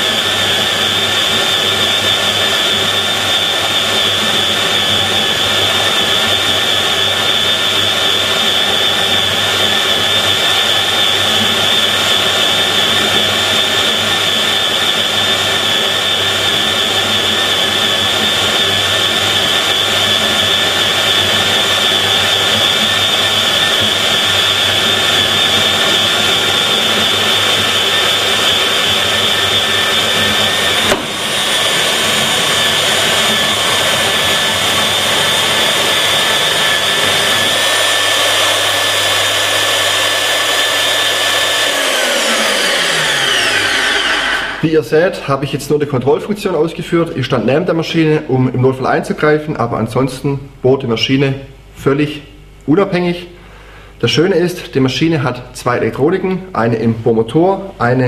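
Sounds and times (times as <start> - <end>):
core drill whining through metal: 0.0 - 44.8.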